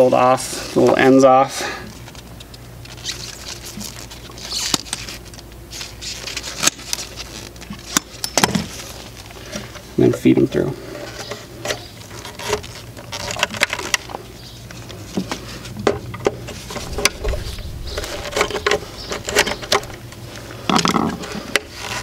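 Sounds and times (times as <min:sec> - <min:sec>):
steady low hum: 0:13.9 - 0:22.0
wires clicking and rustling: 0:16.2 - 0:22.0.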